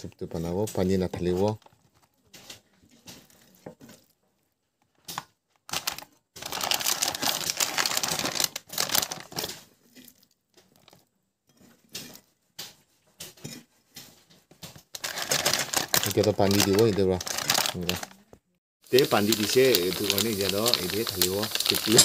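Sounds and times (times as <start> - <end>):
foil bag crinkling: 5.2 - 9.8, 14.9 - 18.2, 18.9 - 22.0.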